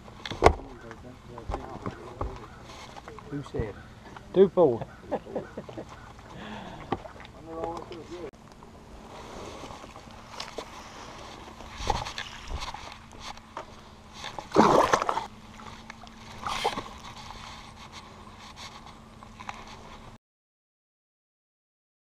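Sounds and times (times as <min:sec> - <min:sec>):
splashing in shallow water: 0:14.1 - 0:17.6.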